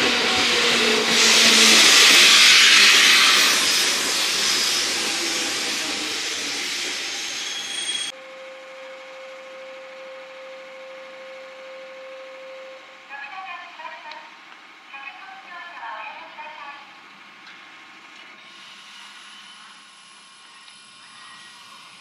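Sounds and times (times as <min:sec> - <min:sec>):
train passing at speed: 0:00.0 - 0:08.1
steady tone: 0:08.0 - 0:13.2.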